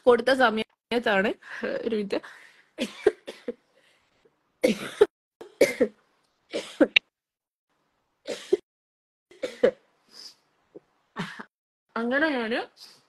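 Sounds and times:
woman coughing: 2.8s - 3.6s, 4.6s - 7.0s, 8.3s - 8.6s, 9.3s - 9.8s.

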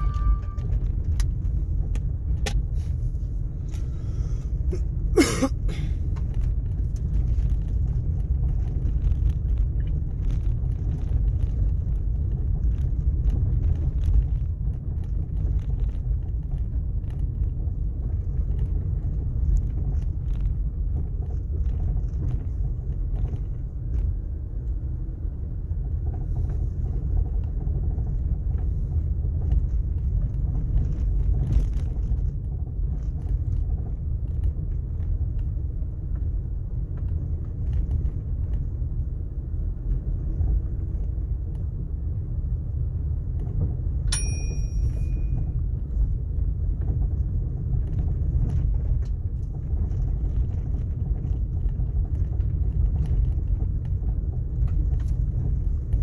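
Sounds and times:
tyres rumbling on gravel: 45.2s - 56.0s.

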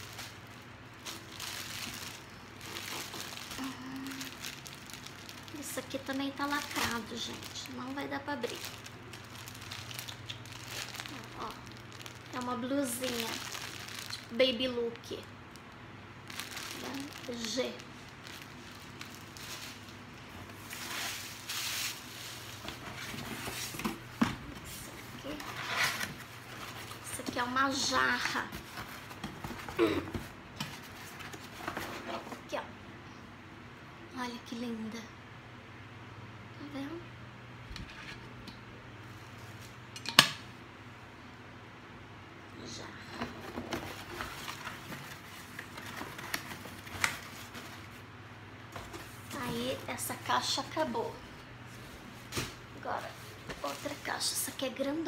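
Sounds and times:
packaging rustling: 0.0s - 32.4s, 43.2s - 48.0s, 48.7s - 50.2s
plastic bag crinkling: 0.0s - 32.4s, 43.5s - 48.0s, 48.8s - 55.0s.

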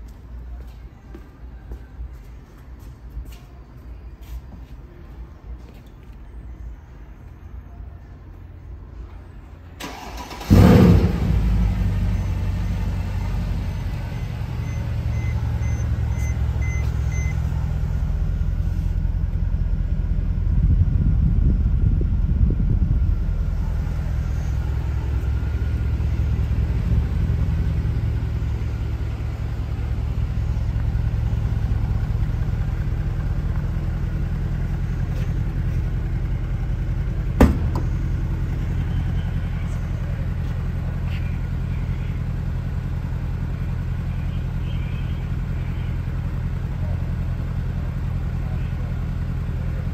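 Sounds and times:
car engine idling: 9.8s - 49.9s
sharp knock: 37.4s - 37.9s.

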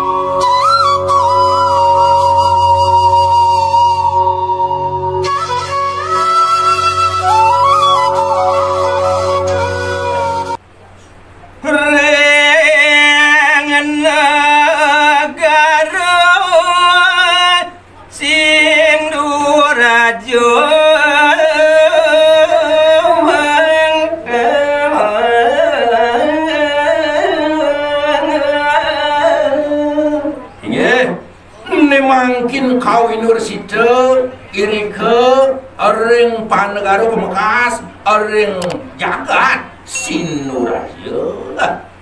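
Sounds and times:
flute note: 0.0s - 10.6s
man singing unaccompanied: 11.6s - 42.0s.

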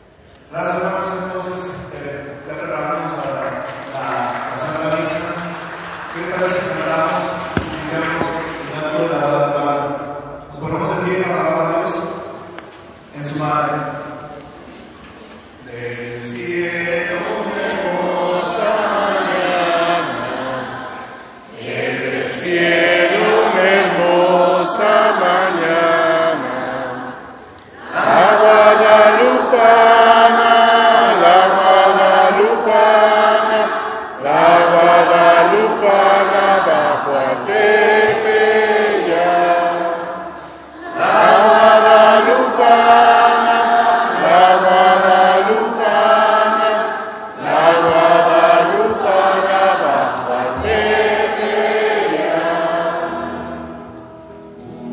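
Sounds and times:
man chanting into a microphone: 0.6s - 12.4s, 15.7s - 18.9s.

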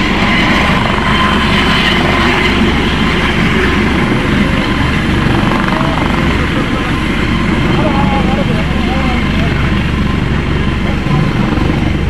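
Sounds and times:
helicopter hovering: 0.0s - 12.0s
low rumble: 0.0s - 12.0s.

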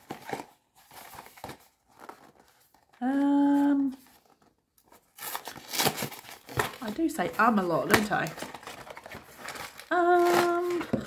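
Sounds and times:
woman humming: 3.0s - 4.0s, 9.9s - 11.0s.

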